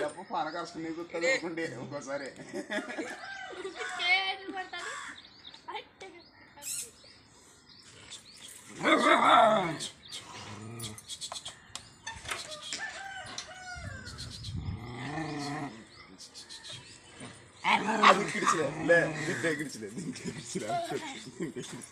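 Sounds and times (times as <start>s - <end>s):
rooster crowing: 12.5s - 14.2s.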